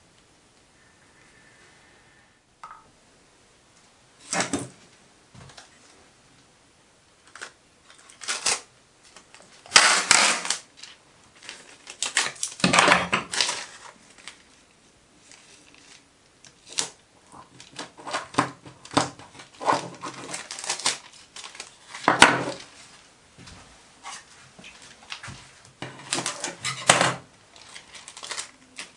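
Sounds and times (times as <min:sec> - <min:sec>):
tape crackling: 0:07.2 - 0:23.1, 0:24.0 - 0:28.9
tape pulled off roll: 0:09.7 - 0:10.7.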